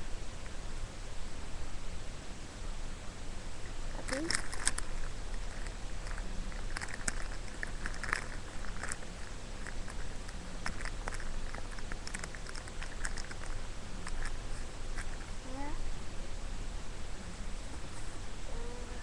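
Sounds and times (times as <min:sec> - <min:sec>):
squishy toy clicks and rustles: 0:04.0 - 0:15.3.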